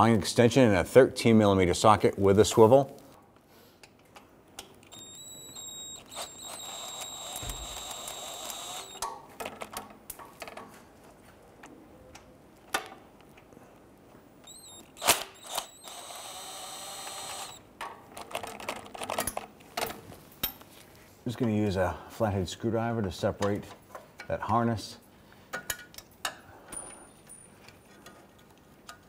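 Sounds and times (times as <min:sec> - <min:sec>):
ratchet clicking: 0:04.9 - 0:09.0, 0:14.4 - 0:17.6.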